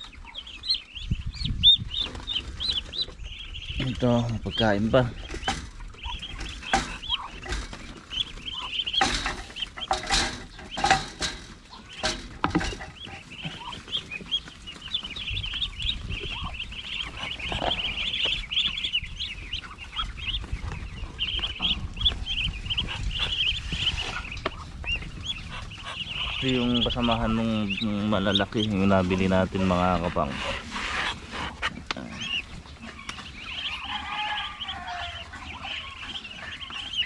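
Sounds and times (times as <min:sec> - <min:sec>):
chickens peeping and clucking: 0:00.0 - 0:37.0
knocks and rustles: 0:05.1 - 0:18.8.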